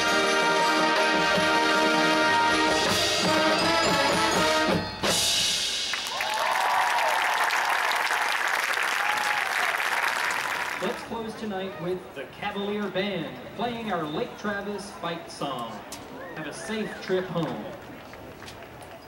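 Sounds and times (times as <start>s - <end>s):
marching band playing: 0.0s - 6.5s
crowd applause: 5.8s - 11.3s, 16.1s - 19.0s.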